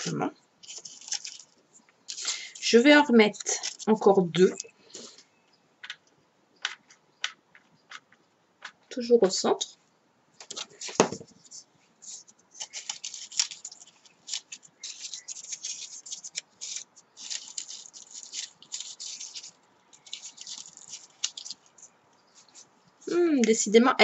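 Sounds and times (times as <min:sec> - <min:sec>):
paper crinkling and rustling: 0:00.0 - 0:04.6, 0:10.4 - 0:22.7.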